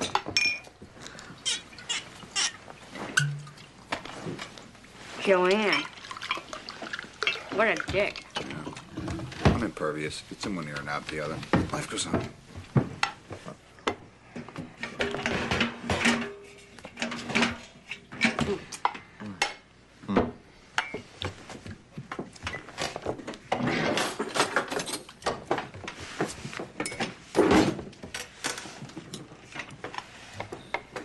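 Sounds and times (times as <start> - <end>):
dishes and cutlery clinking: 0.0 - 0.8, 1.5 - 3.7, 14.8 - 19.6.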